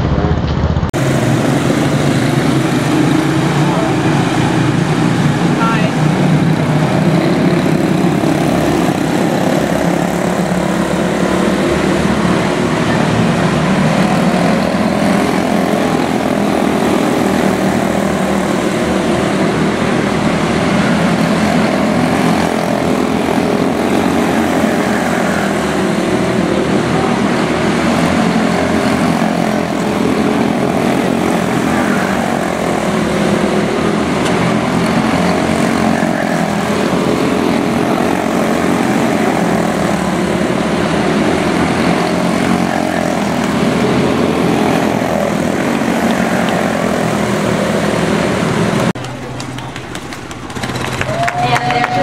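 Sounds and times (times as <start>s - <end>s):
small race car engines droning: 0.0s - 52.0s.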